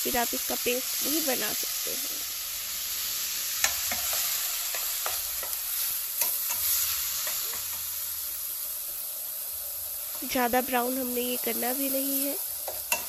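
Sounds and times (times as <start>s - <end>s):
onion sizzling in oil: 0.0s - 13.0s
utensil clicking against pan: 3.6s - 5.6s, 6.2s - 7.9s, 12.6s - 13.0s.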